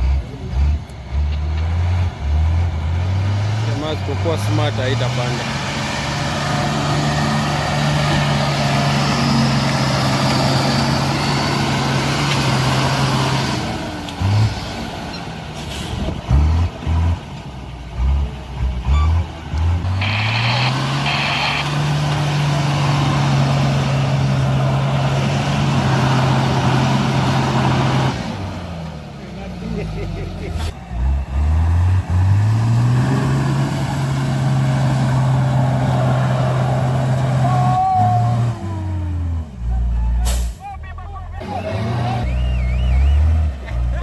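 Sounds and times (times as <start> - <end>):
diesel truck engine under load: 0.0 - 44.0
engine throttle bursts: 18.9 - 28.5.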